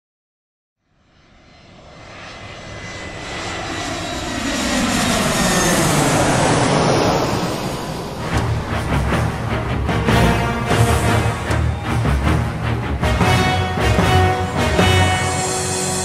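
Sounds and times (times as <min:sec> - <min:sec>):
jet aircraft approaching: 0:00.8 - 0:16.0.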